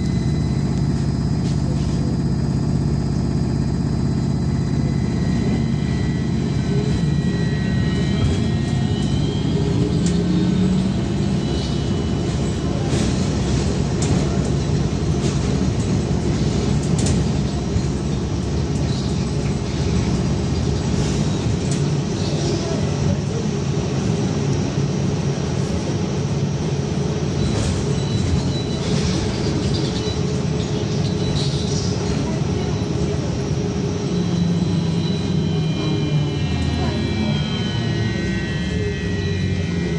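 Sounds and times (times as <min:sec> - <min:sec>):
bus rumbling: 0:00.0 - 0:39.9
electric drive whining: 0:34.3 - 0:39.9.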